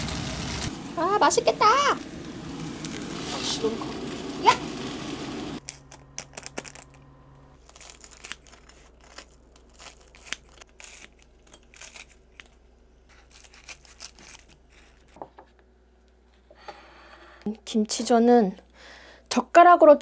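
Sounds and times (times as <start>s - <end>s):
sauce sachet tearing open: 7.6s - 15.1s
scissors snipping crunchy snacks: 7.6s - 15.2s.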